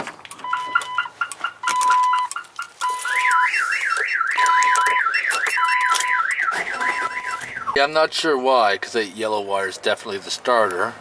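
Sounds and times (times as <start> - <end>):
car alarm beeping: 0.3 - 7.9
car alarm warbling wail: 1.7 - 7.8.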